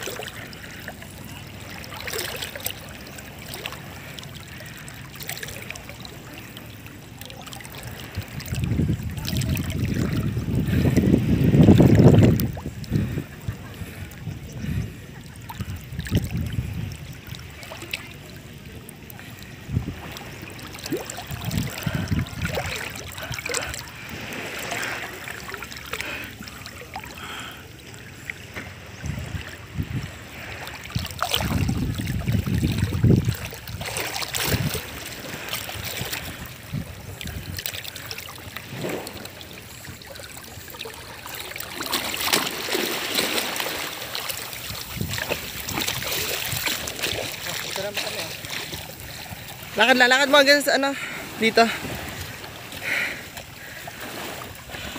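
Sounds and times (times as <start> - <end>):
seawater splashing and lapping: 0.0 - 54.9
wind buffeting microphone: 7.8 - 18.2, 19.2 - 24.8, 28.8 - 40.6, 43.2 - 50.2.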